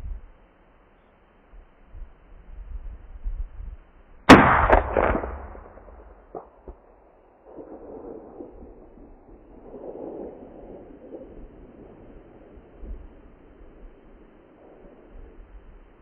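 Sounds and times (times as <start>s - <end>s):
low wind rumble: 0.0s - 16.0s
rifle shot with echo: 4.3s - 10.5s.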